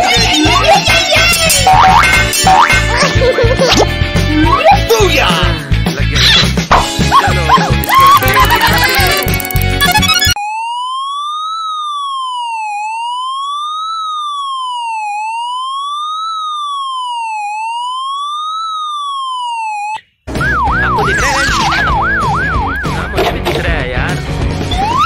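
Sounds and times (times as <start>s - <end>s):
yelping siren: 7.8s - 22.8s, 24.7s - 25.0s
police siren wailing: 7.8s - 22.9s, 24.7s - 25.0s.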